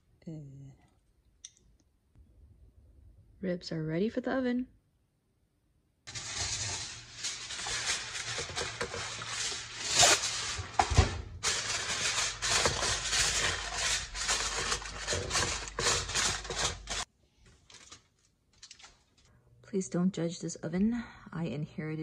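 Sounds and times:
aluminium foil crinkling: 6.1 - 19.3.

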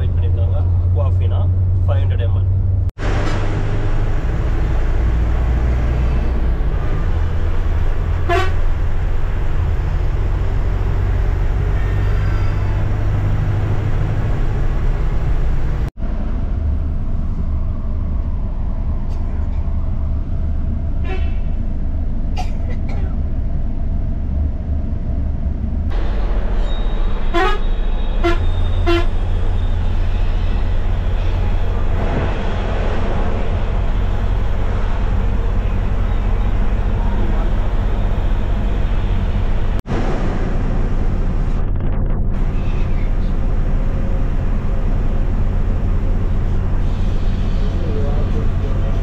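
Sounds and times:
bus engine drone: 0.0 - 49.0
vehicle horn toot: 8.2 - 8.7, 21.0 - 21.5, 27.3 - 30.4.

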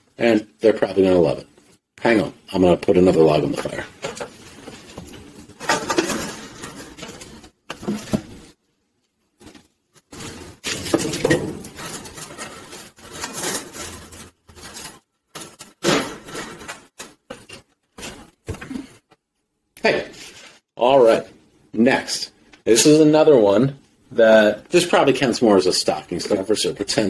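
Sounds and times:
metal fire tools clanking: 3.3 - 8.2, 10.1 - 18.2.

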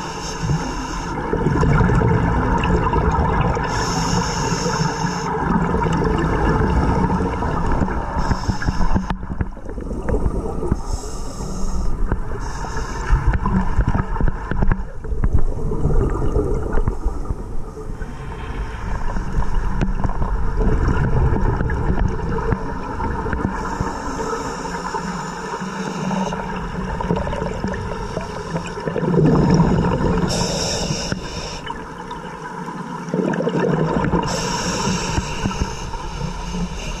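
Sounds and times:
regulator breathing hiss: 0.0 - 1.2, 3.7 - 5.4, 8.2 - 9.2, 10.8 - 13.4, 23.6 - 26.4, 30.3 - 31.8, 34.3 - 37.0
exhaled bubbles rumbling: 0.0 - 37.0.

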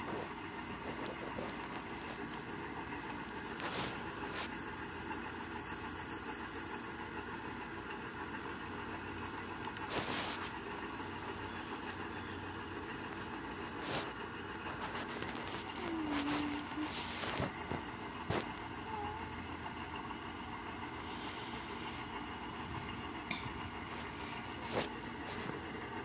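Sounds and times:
cat purring: 0.0 - 4.7, 13.0 - 20.0, 21.0 - 26.0
handling rustles: 0.0 - 4.8, 9.8 - 10.7, 12.9 - 18.8, 23.4 - 26.0.

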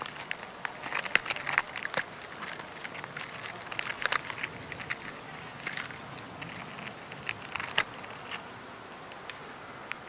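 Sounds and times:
paper clicks: 0.0 - 8.4
ant ticking and crackling: 0.0 - 10.0
steady hiss: 0.0 - 10.0.

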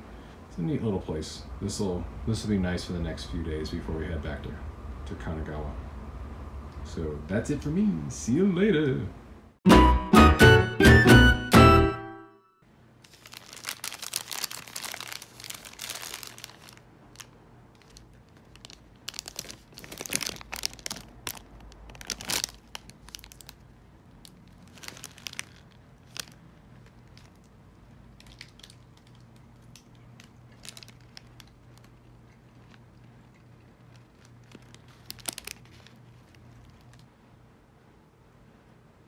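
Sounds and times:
short musical jingle: 9.7 - 12.6
faint low hum: 12.6 - 39.0
paper wrapper rustling: 13.0 - 27.5, 28.2 - 37.1
plastic bag crinkling: 13.0 - 37.1.

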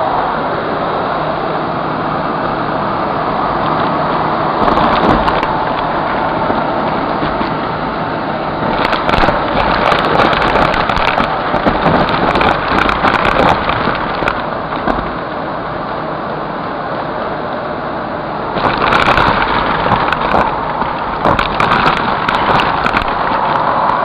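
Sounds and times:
debris crackling into vacuum: 8.6 - 15.2, 18.6 - 24.0.

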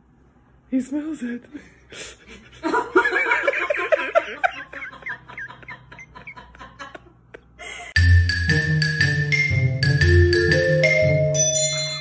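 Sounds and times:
person giggling: 2.0 - 8.0.

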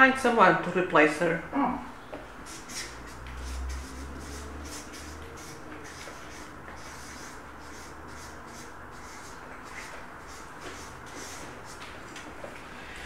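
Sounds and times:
marker scratching on paper: 2.4 - 12.3.

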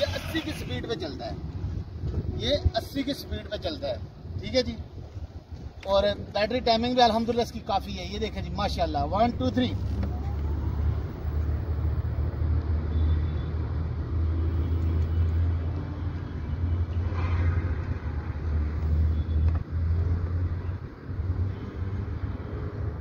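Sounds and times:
wind buffeting microphone: 0.6 - 6.9.

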